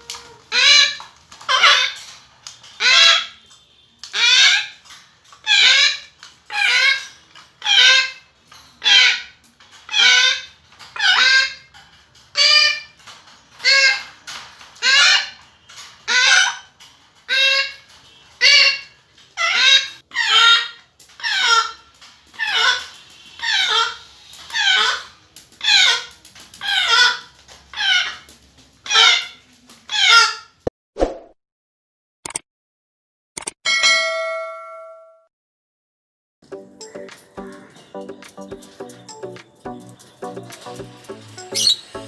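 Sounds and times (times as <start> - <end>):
parrot begging calls: 0.0 - 2.0, 2.8 - 3.4, 4.1 - 4.8, 40.9 - 42.0.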